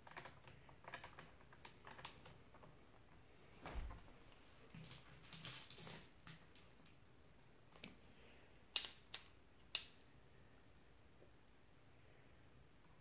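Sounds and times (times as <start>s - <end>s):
small screws rattling in plastic box: 4.8s - 6.7s.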